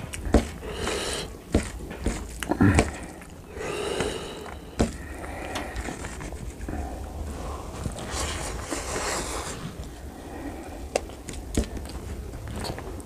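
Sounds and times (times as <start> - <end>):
wet chewing with mouth smacks: 0.0 - 6.7
fingers squishing rice: 0.0 - 13.0.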